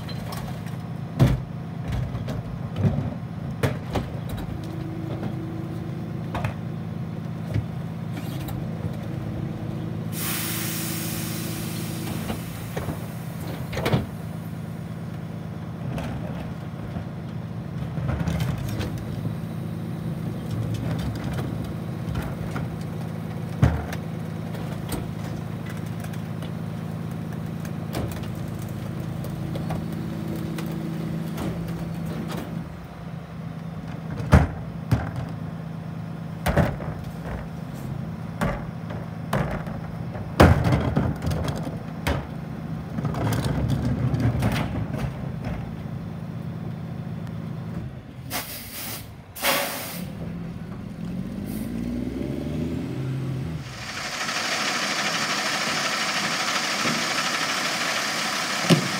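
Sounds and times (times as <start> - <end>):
diesel truck engine: 0.0 - 58.9
air brakes hissing: 10.1 - 14.5, 48.2 - 50.2, 51.4 - 51.8, 53.6 - 58.9.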